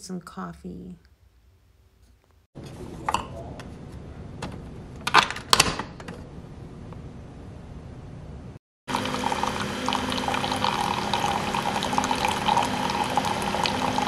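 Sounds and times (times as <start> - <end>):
coffee pouring into a mug: 8.9 - 14.0.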